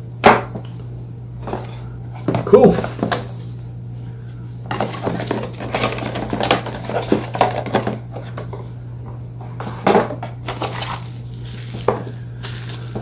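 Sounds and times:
steady low hum: 0.0 - 13.0
packaging rustling: 10.4 - 13.0.

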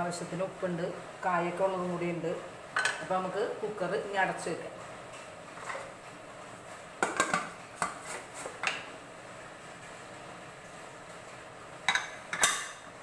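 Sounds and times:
metal pot lid clanking: 11.9 - 12.9.

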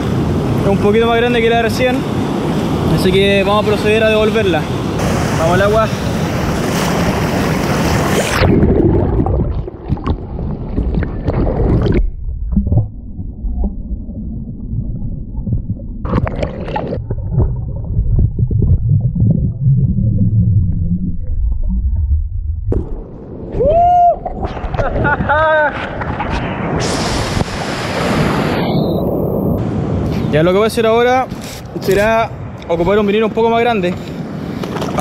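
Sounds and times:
breaking surf: 0.0 - 12.0, 22.8 - 31.3.

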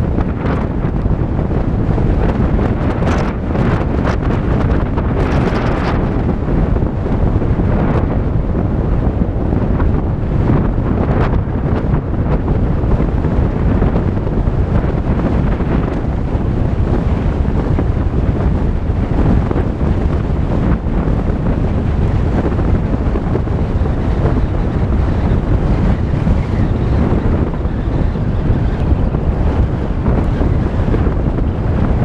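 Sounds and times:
wind buffeting microphone: 0.0 - 32.0.

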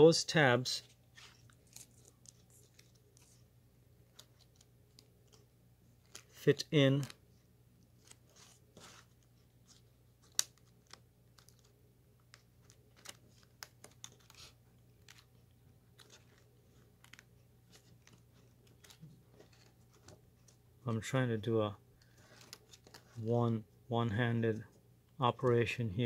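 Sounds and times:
faint steady low hum: 0.0 - 26.0
clicks and crinkles of cable: 1.2 - 3.4, 4.1 - 7.2, 8.0 - 20.6, 22.0 - 23.2.

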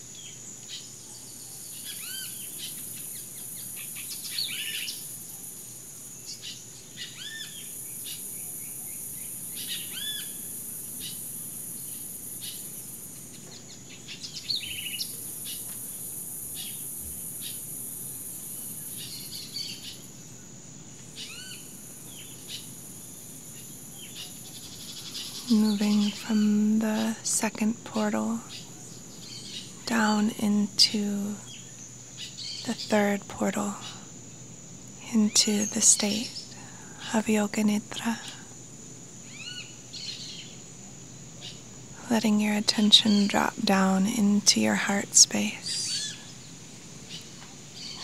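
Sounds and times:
higher insect buzz: 0.0 - 48.0
birds chirping and trilling: 0.2 - 5.1, 6.3 - 12.8, 13.4 - 16.0, 21.2 - 22.8, 23.5 - 33.9, 39.3 - 40.6, 47.1 - 48.0.

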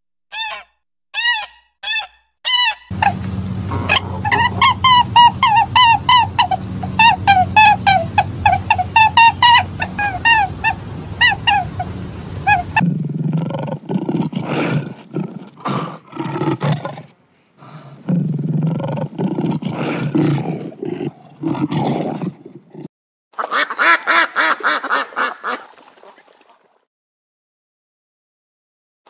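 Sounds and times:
duck honking calls: 0.4 - 12.8, 23.4 - 25.6
lioness roaring and grunting: 3.7 - 8.8, 12.5 - 22.9.

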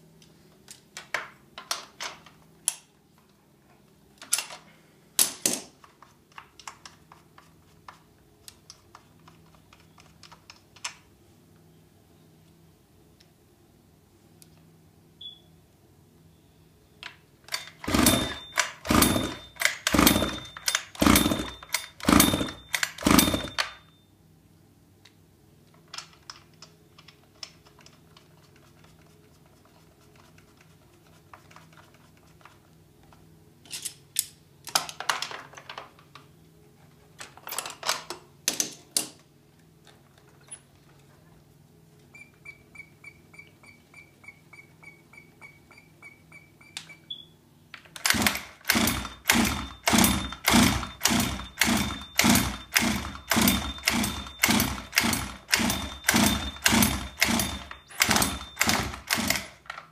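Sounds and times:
pull-starter rough pulls: 17.8 - 23.5.

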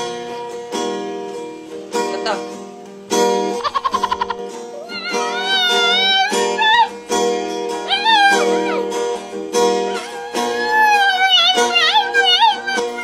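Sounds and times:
guitar chords: 0.0 - 13.0
dog howling: 4.8 - 7.0, 7.8 - 13.0.

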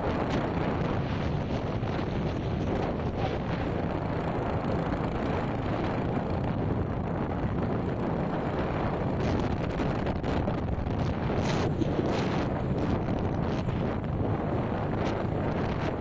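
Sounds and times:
motorcycle running: 0.0 - 16.0
wind buffeting microphone: 0.0 - 16.0.

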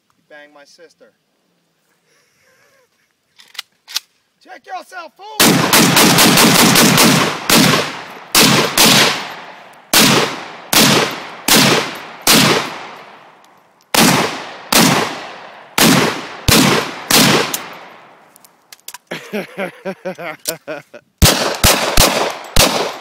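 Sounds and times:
rifle shots with echo: 5.4 - 18.2, 21.2 - 23.0.

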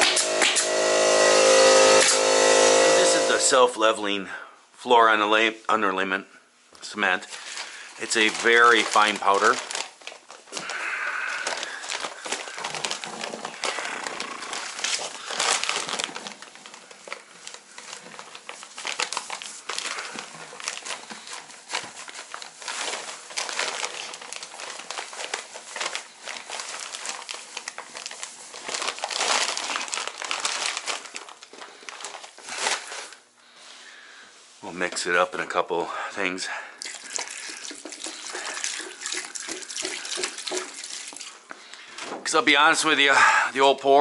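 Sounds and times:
paper sack crinkling: 7.2 - 33.2, 36.8 - 43.0
powder pouring into bucket: 7.3 - 32.5, 36.8 - 41.6.

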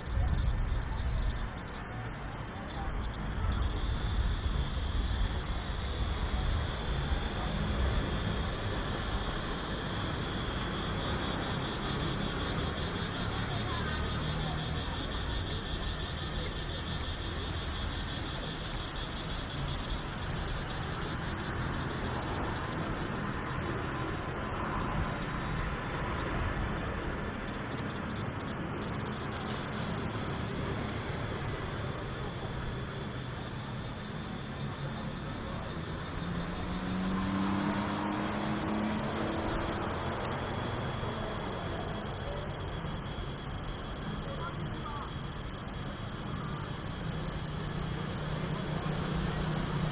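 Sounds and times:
steady rushing outdoor noise: 0.0 - 49.9
vehicle engine passing by: 36.2 - 42.4.

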